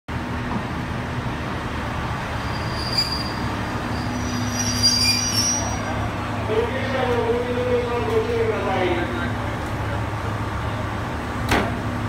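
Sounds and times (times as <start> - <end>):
train rumbling slowly: 0.1 - 12.0
train wheels squealing: 2.4 - 6.0.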